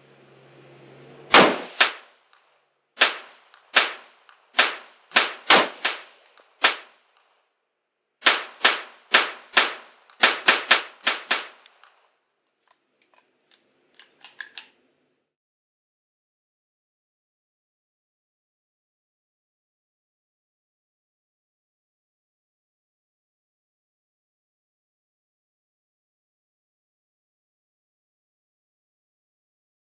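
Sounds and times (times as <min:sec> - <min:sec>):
pistol gunshots: 0:01.3 - 0:02.2, 0:03.0 - 0:07.1, 0:08.2 - 0:11.9
faint metallic clicks: 0:11.6 - 0:14.9.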